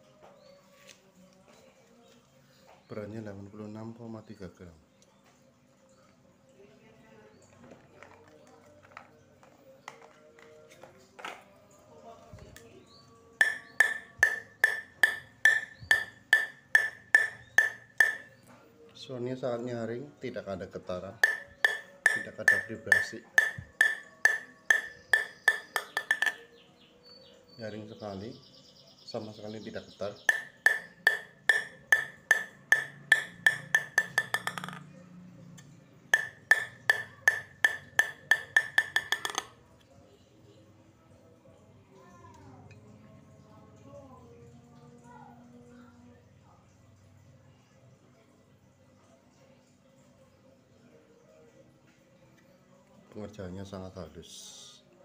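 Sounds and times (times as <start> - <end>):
taps on table tennis blade: 13.4 - 18.3, 21.2 - 26.4, 30.3 - 34.9, 36.2 - 39.5.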